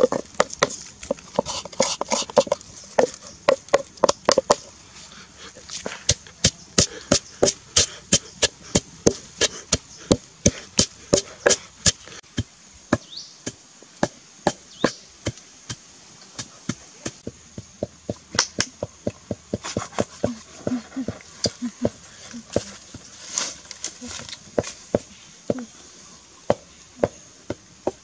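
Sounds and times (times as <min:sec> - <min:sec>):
pestle pounding in wooden mortar: 0:00.0 - 0:04.7, 0:06.1 - 0:15.8.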